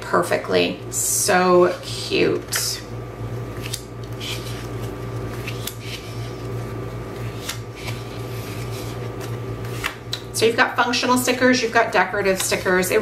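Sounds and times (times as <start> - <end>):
steady low hum: 0.0 - 13.0
paper rustling: 4.2 - 10.0.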